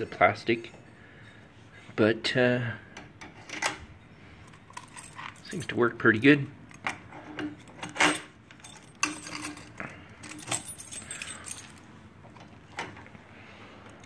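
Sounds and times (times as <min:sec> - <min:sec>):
metal keys jangling: 0:04.4 - 0:12.4.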